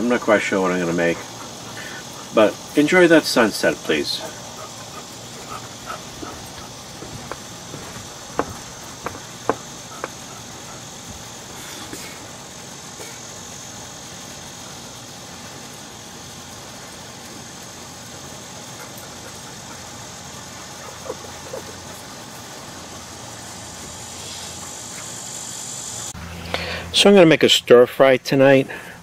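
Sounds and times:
cicadas chorus: 0.0s - 29.0s
sharp knocks: 7.0s - 10.2s.

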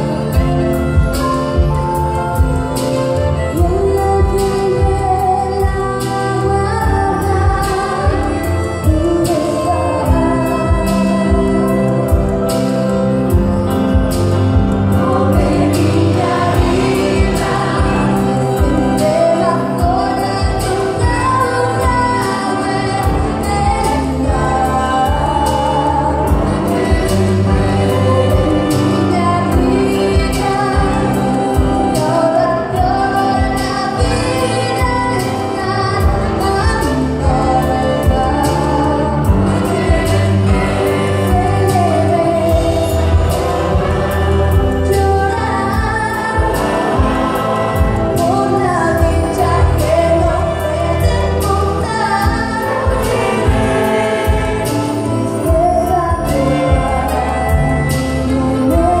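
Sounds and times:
backing music with steady beat: 0.0s - 59.0s
woman singing into microphone: 0.0s - 59.0s.

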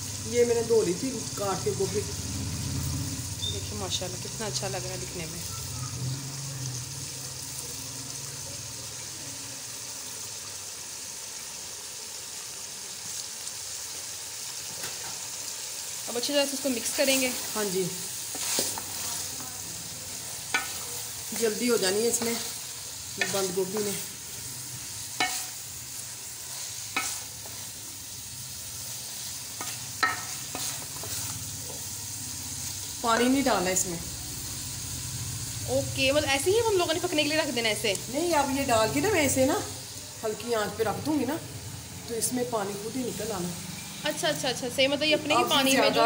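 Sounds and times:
food sizzling in a pot: 0.0s - 46.0s
spoon stirring food in pot: 18.3s - 19.6s, 20.4s - 21.0s, 25.2s - 25.6s, 26.5s - 27.7s, 29.5s - 31.8s
spoon knocking against pot: 30.0s - 30.3s.

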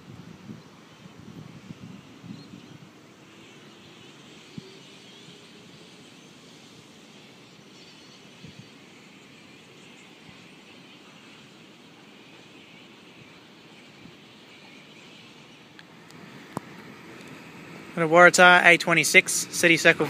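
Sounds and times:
electric train hum rising: 0.0s - 20.0s
station ambience: 8.3s - 20.0s.

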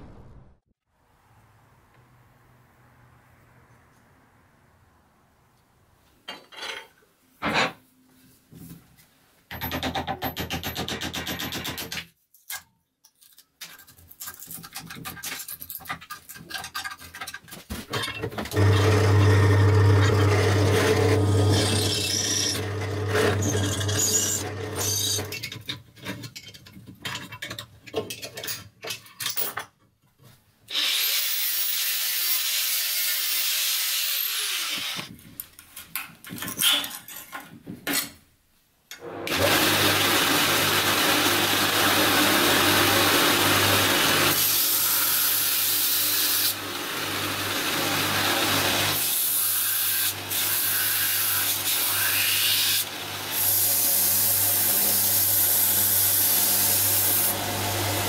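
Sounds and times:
metal clicks and scrapes: 11.2s - 18.5s
belt grinder grinding metal: 18.5s - 25.5s, 30.7s - 35.1s, 39.0s - 58.0s.

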